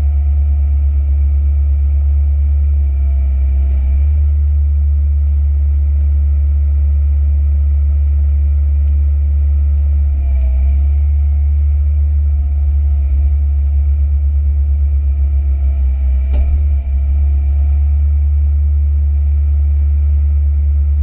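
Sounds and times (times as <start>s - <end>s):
excavator diesel engine droning: 0.0s - 6.4s, 8.0s - 21.0s
faint whine: 0.0s - 21.0s.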